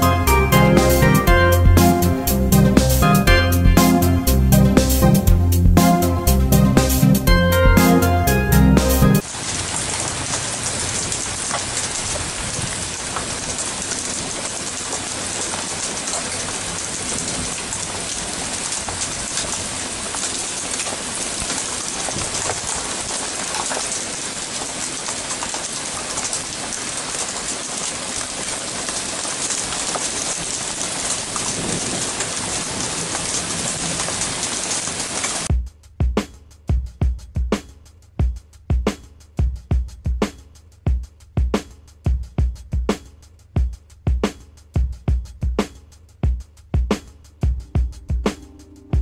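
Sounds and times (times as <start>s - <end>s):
rain falling on gravel: 9.2s - 35.5s.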